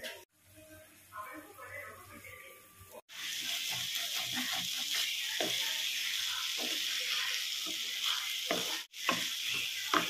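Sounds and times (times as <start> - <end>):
food sizzling in a frying pan: 0.0 - 10.0
wooden spatula scraping a pan: 3.2 - 10.0.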